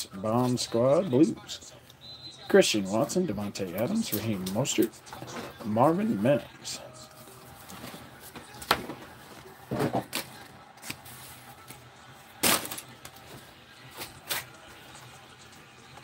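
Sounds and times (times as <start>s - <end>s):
cards rustling and shuffling: 7.2s - 14.6s.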